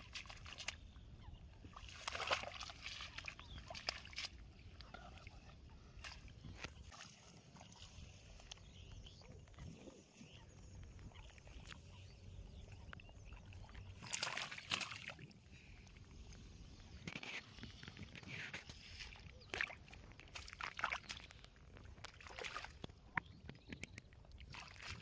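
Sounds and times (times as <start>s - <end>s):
wet splashes and slaps: 0.0s - 0.8s, 1.7s - 4.4s, 14.0s - 15.3s, 19.5s - 23.0s, 24.5s - 25.0s
fish flapping in water: 1.8s - 4.4s.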